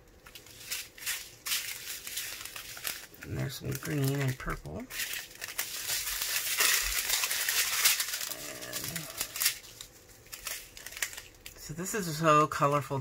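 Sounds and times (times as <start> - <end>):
plastic packets crinkling: 0.0 - 13.0
person humming: 8.2 - 9.4.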